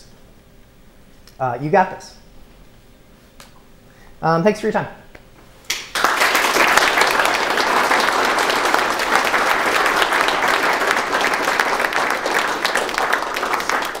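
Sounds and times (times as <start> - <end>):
audience applauding: 5.7 - 14.0.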